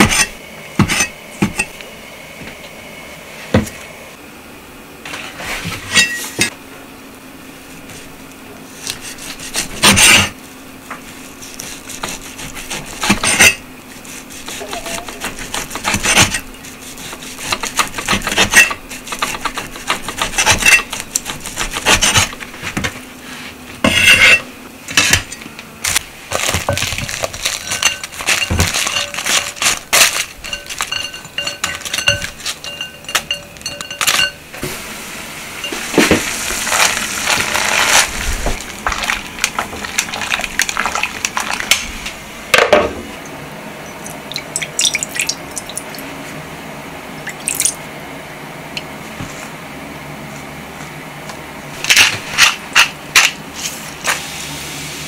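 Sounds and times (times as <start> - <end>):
utensils clinking on bowls: 14.6 - 15.3, 26.4 - 34.4.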